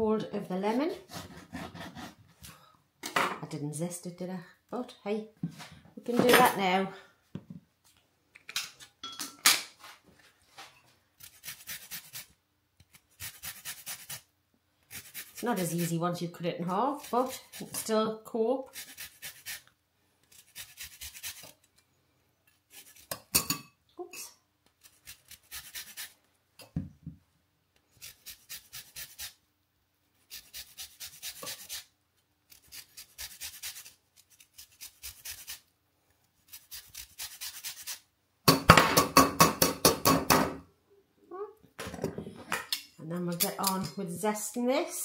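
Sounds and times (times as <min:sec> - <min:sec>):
lemon scraping on a zester: 0:11.2 - 0:14.3, 0:14.9 - 0:18.0, 0:18.6 - 0:21.7, 0:22.5 - 0:23.3, 0:24.8 - 0:26.2, 0:27.9 - 0:29.4, 0:30.2 - 0:31.9, 0:32.5 - 0:35.6, 0:36.4 - 0:38.0.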